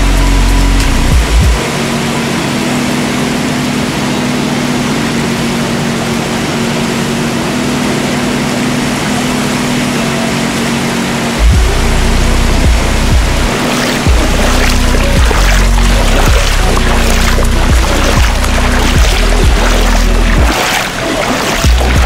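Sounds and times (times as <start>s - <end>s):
outboard motor running: 0.0s - 22.0s.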